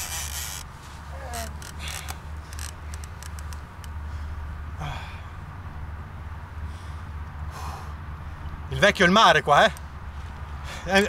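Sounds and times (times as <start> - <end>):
person breathing hard: 4.0 - 5.5, 6.6 - 8.1
strained sigh: 4.8 - 5.4.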